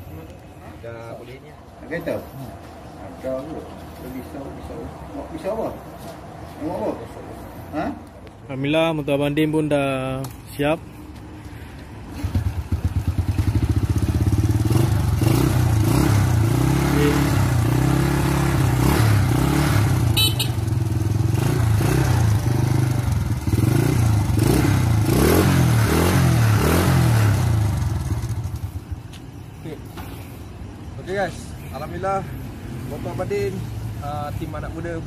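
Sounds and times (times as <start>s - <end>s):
motorcycle engine revving: 12.1s - 28.9s.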